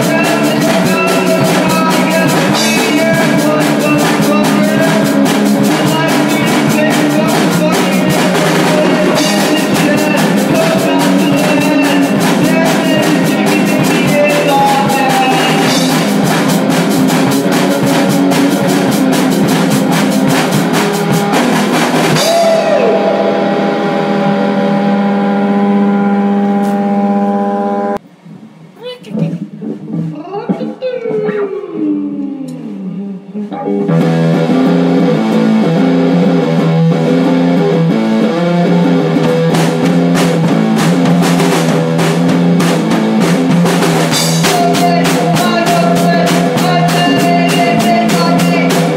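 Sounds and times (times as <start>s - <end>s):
fast drum kit: 0.0s - 27.0s, 28.8s - 31.5s, 33.9s - 48.9s
guitar playing: 0.0s - 28.0s, 32.5s - 48.9s.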